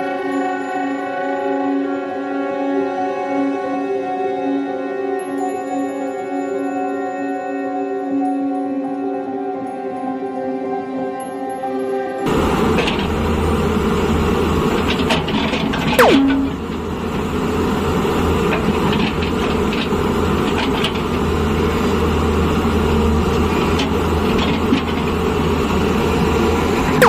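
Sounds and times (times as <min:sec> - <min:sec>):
excavator diesel engine: 0:12.3 - 0:27.0
short falling whistle: 0:16.0 - 0:16.6.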